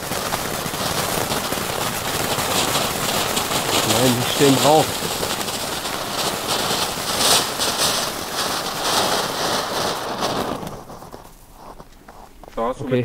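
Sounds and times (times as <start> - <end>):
fountain firework hissing and crackling: 0.0 - 12.6.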